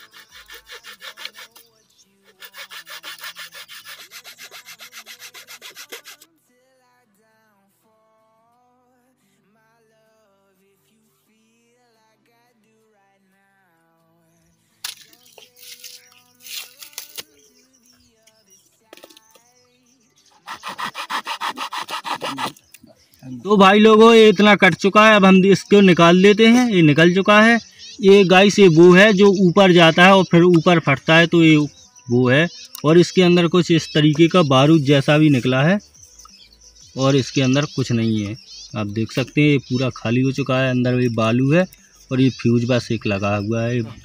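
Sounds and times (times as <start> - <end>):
saw rasping through cardboard: 0.0 - 1.7, 2.3 - 6.3, 20.4 - 22.6
faint bird chirps: 22.0 - 44.0.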